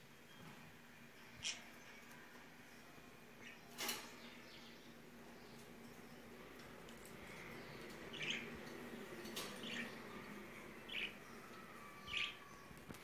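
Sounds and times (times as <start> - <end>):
faint steady hum: 0.0 - 13.0
small bird chirping: 7.2 - 13.0.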